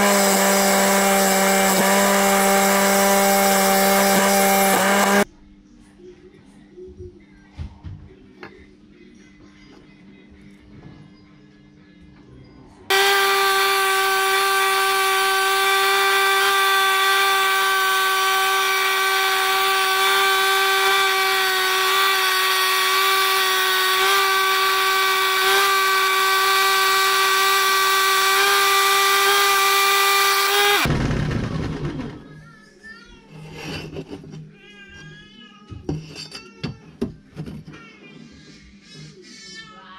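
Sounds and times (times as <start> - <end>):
saw cutting steel: 0.0 - 5.3, 12.9 - 31.6.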